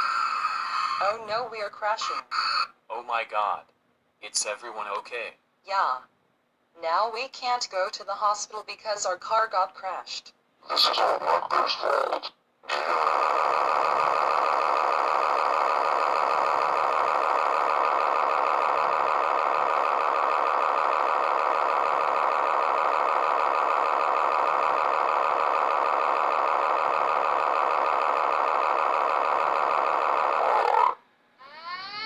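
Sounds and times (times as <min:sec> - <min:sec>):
cartoon rapid rattling: 0:12.7 - 0:32.0.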